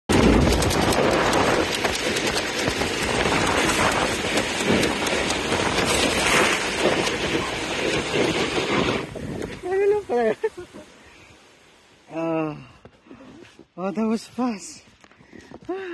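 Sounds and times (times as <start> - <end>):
wind on microphone: 0.1 - 10.1
snow tube sliding on plastic mat: 0.2 - 10.8.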